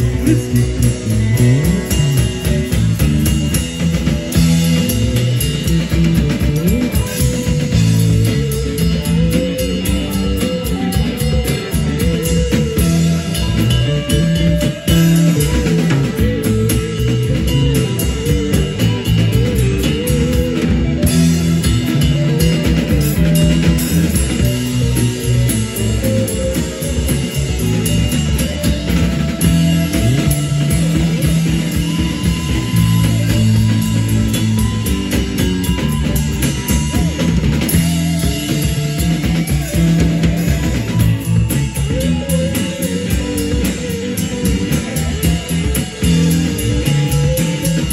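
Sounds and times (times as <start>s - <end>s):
drum kit beat: 0.0s - 47.9s
electric guitars: 0.0s - 47.9s.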